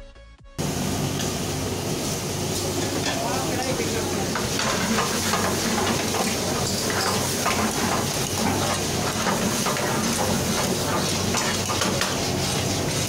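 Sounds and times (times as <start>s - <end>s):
food sizzling in pans: 0.6s - 13.0s
rush of burner flames: 0.6s - 13.0s
metal ladles scraping pans: 2.7s - 13.0s.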